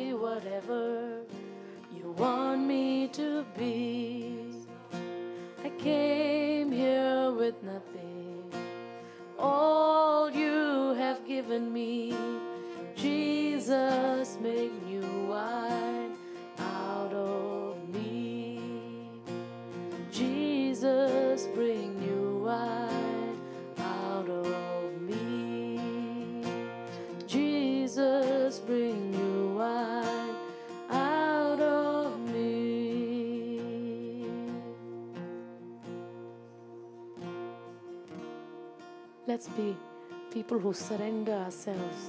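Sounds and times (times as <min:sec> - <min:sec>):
woman singing with vibrato: 0:00.0 - 0:35.2, 0:39.3 - 0:42.0
strummed acoustic guitar: 0:00.0 - 0:42.0.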